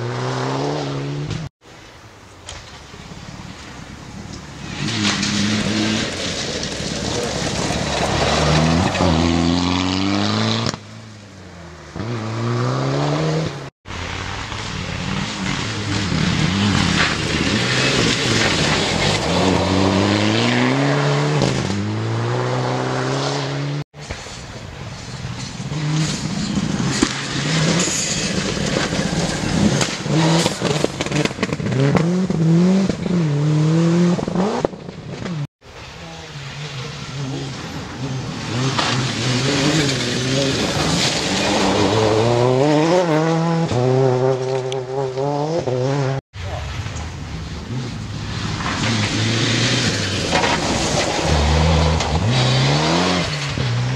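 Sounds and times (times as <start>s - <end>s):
tyres on loose gravel: 1.8s - 9.4s, 13.9s - 20.0s, 24.0s - 31.9s, 35.6s - 42.9s, 46.4s - 53.9s
rally car engines revving: 4.6s - 23.8s, 25.6s - 35.5s, 36.1s - 46.6s, 47.2s - 53.9s.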